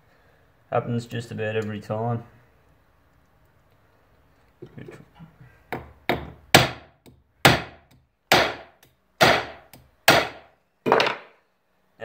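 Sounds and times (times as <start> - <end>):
hammer striking metal bar: 5.8 - 10.4.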